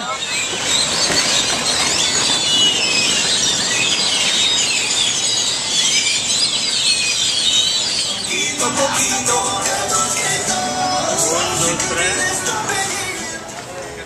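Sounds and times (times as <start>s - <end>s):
flock of birds chirping: 0.0s - 10.4s.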